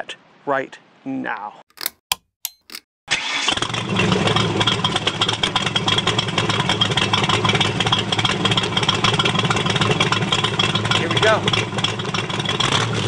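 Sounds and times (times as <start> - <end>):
car engine idling: 4.1 - 13.0.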